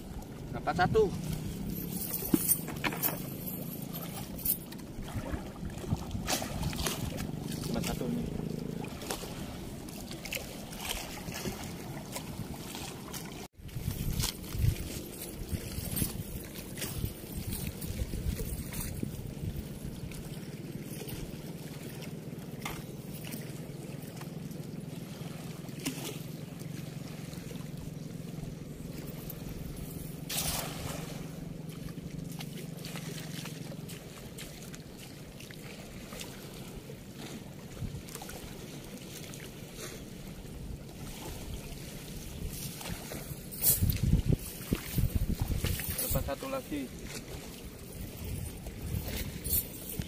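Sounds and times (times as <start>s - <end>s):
cast net splashing into water: 5.0s - 7.7s, 30.2s - 31.4s.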